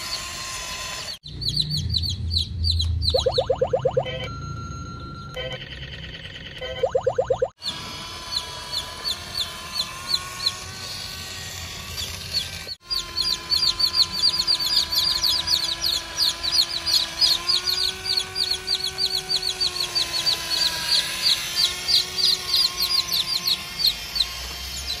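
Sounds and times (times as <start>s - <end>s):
small electric motor whine: 0.0s - 1.2s, 7.6s - 25.0s
short high chirps: 3.1s - 4.6s.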